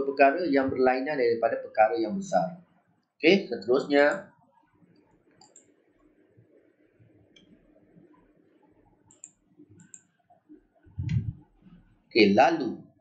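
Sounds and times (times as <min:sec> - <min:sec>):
computer mouse clicks: 0:05.4 - 0:05.8, 0:09.1 - 0:10.2
low thump: 0:11.0 - 0:11.4.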